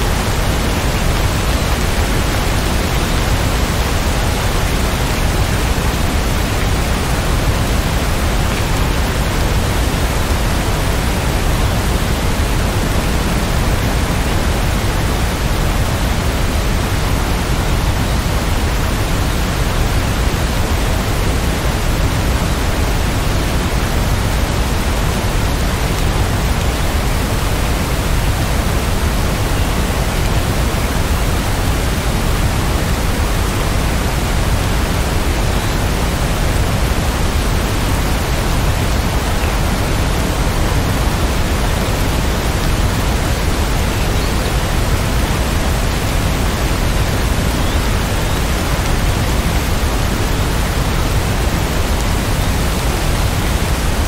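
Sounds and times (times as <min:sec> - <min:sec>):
heavy rain falling: 0:00.0 - 0:54.0.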